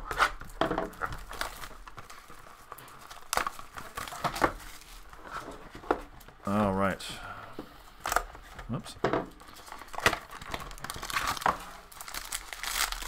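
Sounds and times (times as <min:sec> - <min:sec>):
plastic wrap crinkling: 0:00.0 - 0:06.2, 0:09.3 - 0:13.0.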